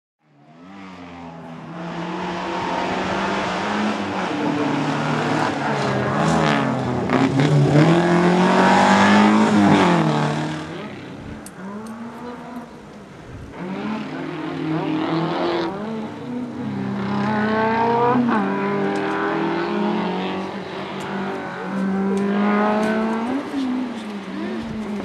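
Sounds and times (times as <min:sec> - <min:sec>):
rally car engine revving: 0:00.5 - 0:25.0.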